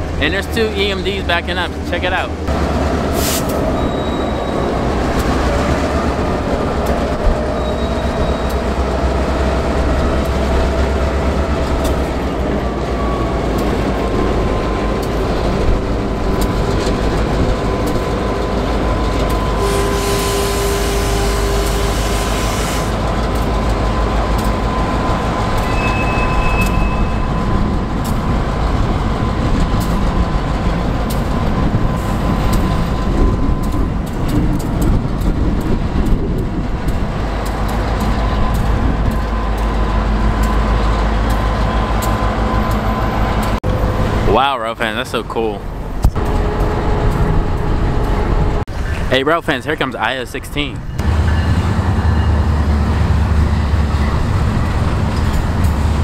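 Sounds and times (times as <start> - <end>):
diesel locomotive rumble: 0.0 - 56.0
air hiss: 3.1 - 3.6
wheel squeal: 3.2 - 4.9, 7.3 - 9.0, 18.9 - 23.0, 24.7 - 27.7.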